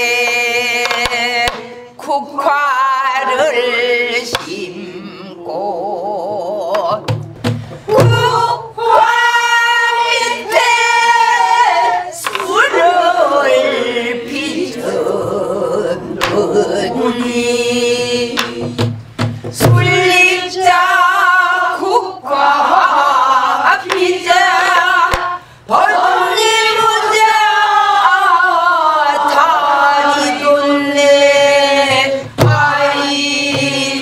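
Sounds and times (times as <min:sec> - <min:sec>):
woman's voice leading song: 0:00.0 - 0:07.1, 0:07.9 - 0:18.8
group singing in unison: 0:00.0 - 0:34.0.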